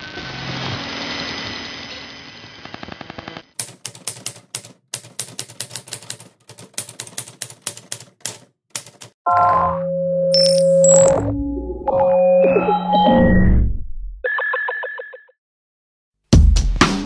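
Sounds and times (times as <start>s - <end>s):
typewriter keystroke clicks: 3.6s - 9.2s.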